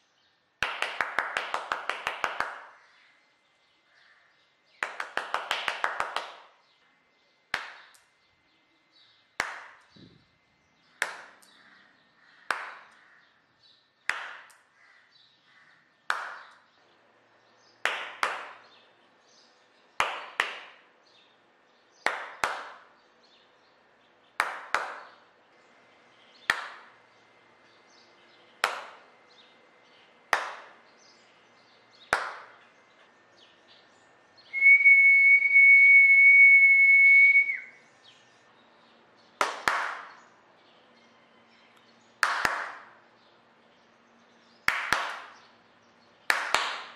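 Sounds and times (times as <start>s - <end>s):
hand claps: 0.6s - 2.8s, 4.8s - 6.6s, 7.5s - 8.1s, 9.4s - 9.9s, 11.0s - 11.6s, 12.5s - 13.0s, 14.0s - 14.7s, 16.1s - 16.7s, 17.8s - 18.8s, 20.0s - 20.9s, 22.0s - 22.9s, 24.4s - 25.2s, 26.5s - 27.0s, 28.6s - 29.1s, 30.3s - 30.8s, 32.1s - 32.6s, 39.4s - 40.2s, 42.2s - 43.0s, 44.6s - 45.5s, 46.3s - 46.9s
person whistling high note: 34.5s - 37.8s.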